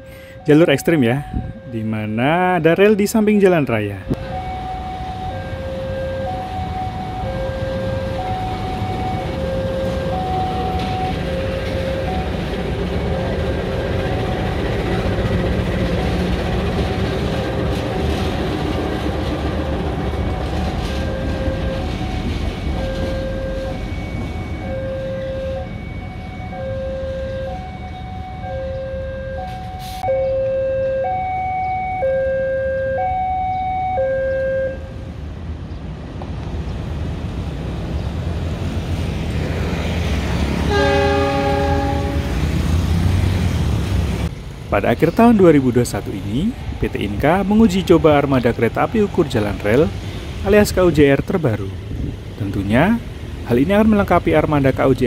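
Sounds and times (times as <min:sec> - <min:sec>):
two-tone warning signal: 0:00.0 - 0:18.4, 0:19.6 - 0:35.0, 0:40.7 - 0:42.4
locomotive engine rumble: 0:00.0 - 0:33.7, 0:34.8 - 0:55.0.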